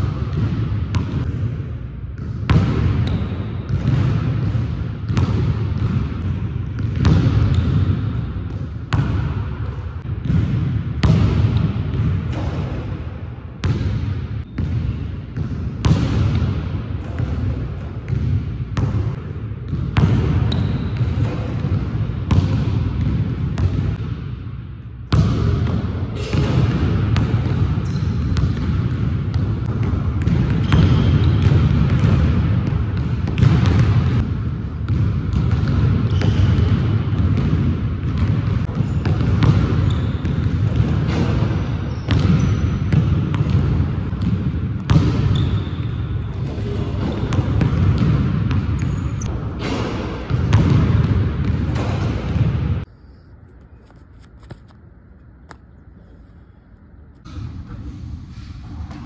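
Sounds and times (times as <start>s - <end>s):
basketball bouncing on hardwood floor: 0.0s - 1.5s, 2.2s - 12.9s, 13.6s - 16.6s, 17.2s - 24.1s, 25.1s - 52.8s.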